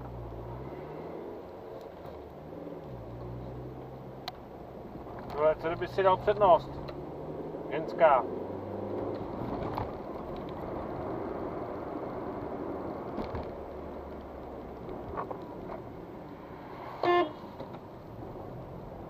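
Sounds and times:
road and engine noise inside car: 0.0s - 19.0s
car horn toot: 17.0s - 17.5s.

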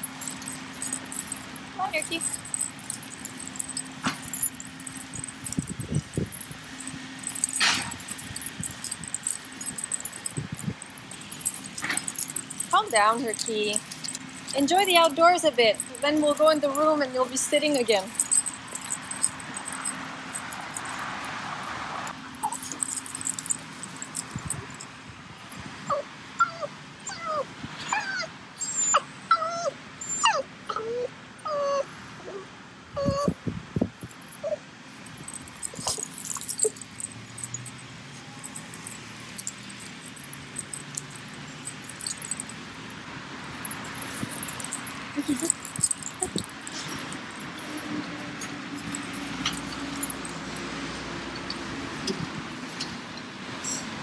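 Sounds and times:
dog tags and leash clips jingling: 0.0s - 25.6s, 33.0s - 54.0s
dog whining: 22.4s - 23.5s, 25.8s - 33.4s, 34.3s - 34.6s, 35.3s - 37.6s.

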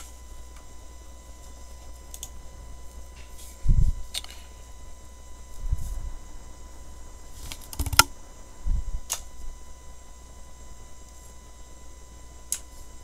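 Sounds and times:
faint steady hum: 0.0s - 13.0s
sharp clicks: 7.5s - 8.1s.

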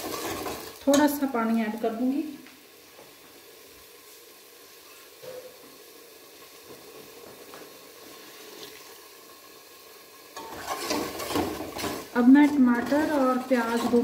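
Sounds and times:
sauce sizzling in a pot: 0.0s - 14.0s
metal ladle scraping pot: 10.4s - 14.0s.

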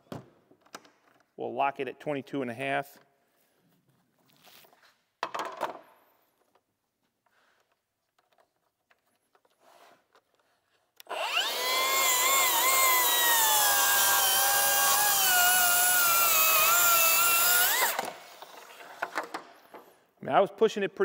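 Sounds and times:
track saw cutting wood: 11.0s - 18.8s.

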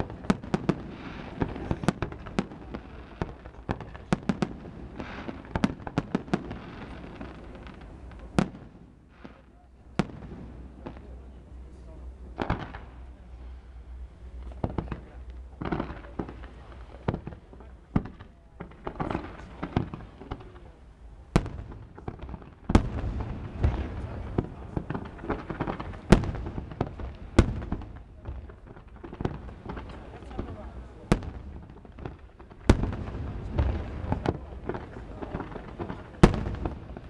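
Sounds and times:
fireworks bursting with sharp bangs: 0.0s - 37.0s.

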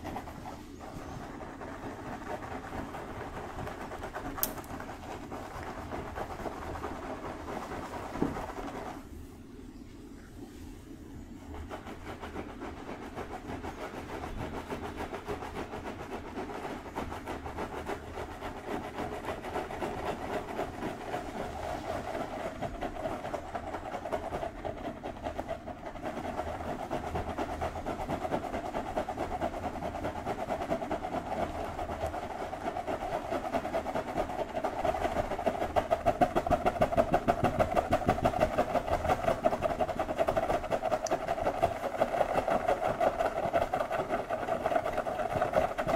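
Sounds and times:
fingertips scratching through hair: 0.0s - 9.1s.

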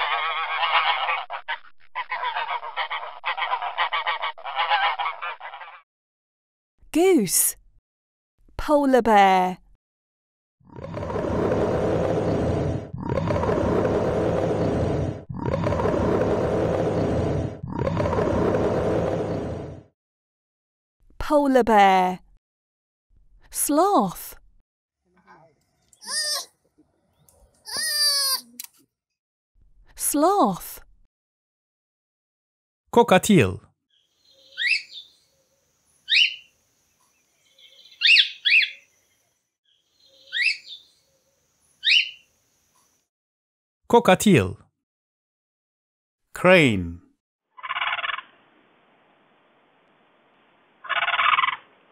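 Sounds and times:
bear growling: 10.7s - 19.9s.

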